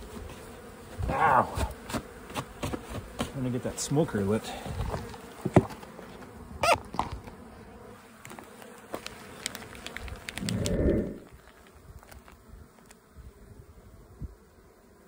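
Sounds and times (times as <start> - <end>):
honey bees buzzing: 0.0 - 15.0
jar of bees shaken: 8.2 - 13.0.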